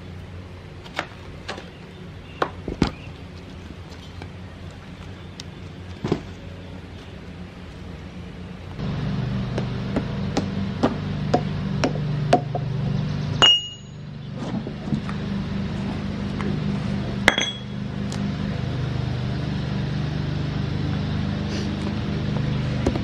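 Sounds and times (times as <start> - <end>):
sharp metallic clangs: 13.4 - 14.1, 17.2 - 17.8.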